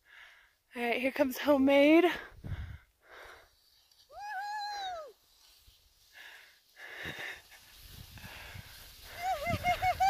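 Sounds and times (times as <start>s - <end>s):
soft breaths: 2.0s - 4.1s, 5.2s - 9.2s
person whooping: 4.1s - 5.2s, 9.1s - 10.0s.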